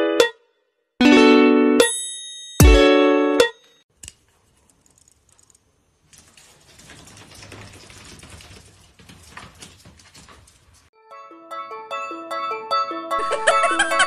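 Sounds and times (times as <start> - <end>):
kitten scrabbling on tiled floor: 6.0 - 10.9.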